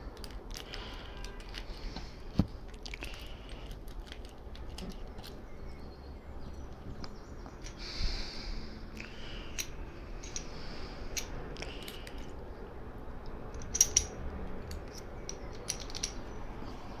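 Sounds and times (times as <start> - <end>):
lock picking metal clicks and scrapes: 0.0 - 1.9, 2.7 - 5.4, 9.5 - 12.4, 13.2 - 16.4.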